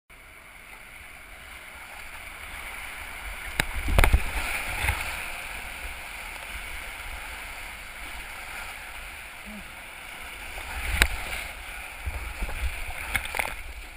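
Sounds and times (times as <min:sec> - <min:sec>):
whitewater rapids rushing: 0:00.7 - 0:13.9
knocks and splashes: 0:03.5 - 0:05.3, 0:10.6 - 0:13.9.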